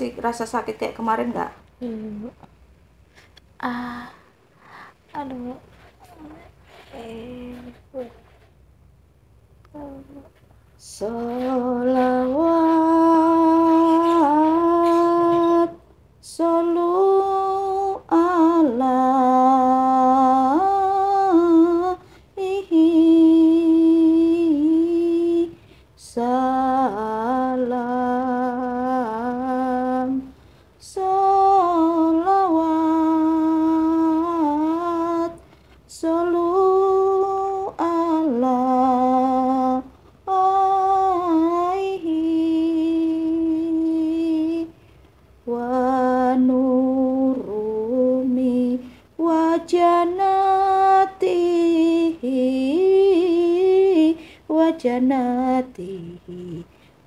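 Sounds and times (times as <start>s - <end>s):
person humming slow melody: 1.8s - 2.3s, 3.6s - 4.3s, 9.7s - 15.4s.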